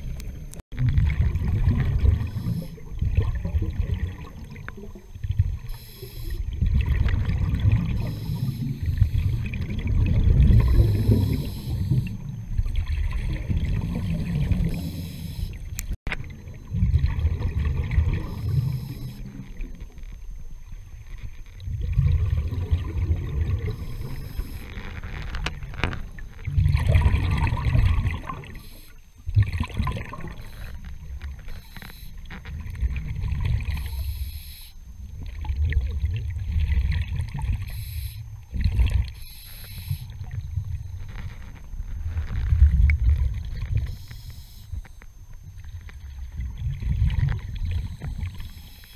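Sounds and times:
exhaled bubbles rumbling underwater: 0.0s - 48.9s
regulator inhalation hiss: 5.8s - 6.4s, 10.8s - 12.1s, 33.8s - 34.8s, 37.7s - 38.2s, 39.2s - 40.2s.

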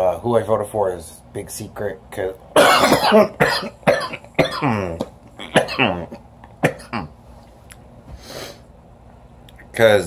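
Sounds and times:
man clearing throat: 2.6s - 7.2s
man coughing: 2.6s - 7.2s.

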